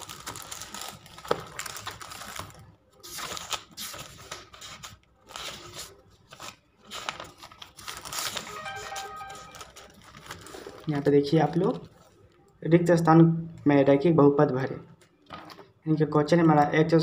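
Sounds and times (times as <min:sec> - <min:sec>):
pages turning: 0:01.2 - 0:10.9.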